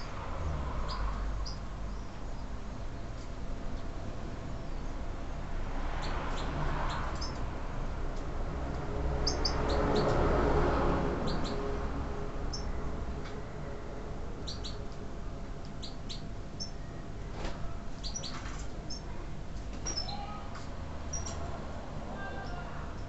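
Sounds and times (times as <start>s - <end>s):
goldfinches chirping: 0.8s - 2.5s, 6.0s - 7.4s, 9.2s - 10.1s, 11.2s - 11.6s, 12.5s - 12.8s, 14.4s - 14.8s, 15.8s - 16.9s, 18.0s - 19.1s, 21.1s - 21.4s.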